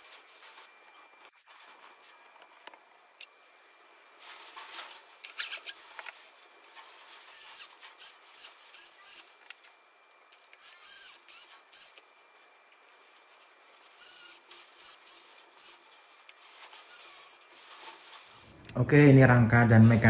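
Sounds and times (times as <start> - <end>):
motor scraping against wood and metal: 4.3 - 9.7, 10.4 - 12.0, 13.4 - 18.8.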